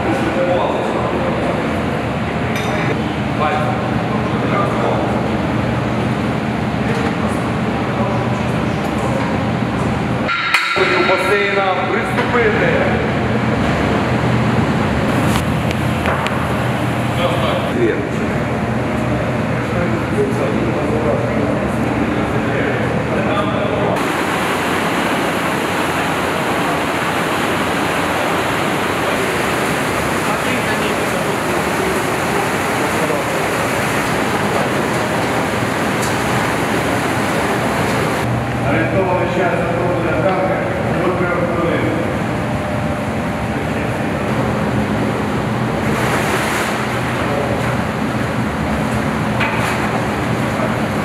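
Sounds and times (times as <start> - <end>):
water churning and splashing: 24.0 - 38.3, 43.8 - 51.0.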